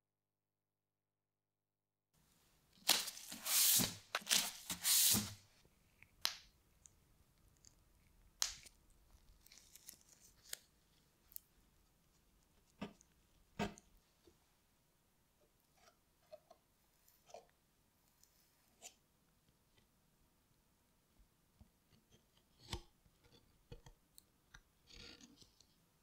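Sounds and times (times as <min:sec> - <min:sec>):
tearing sounds: 0:08.4 - 0:10.7.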